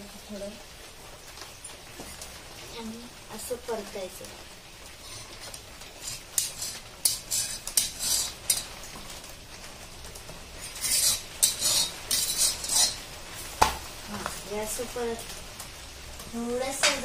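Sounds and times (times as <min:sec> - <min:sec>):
metal spatula scraping griddle: 0:04.8 - 0:09.1, 0:10.5 - 0:13.2.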